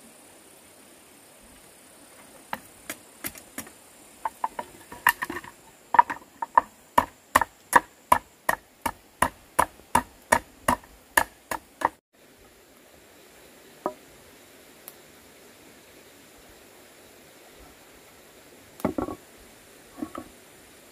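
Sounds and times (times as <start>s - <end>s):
tool striking wood: 6.0s - 12.0s.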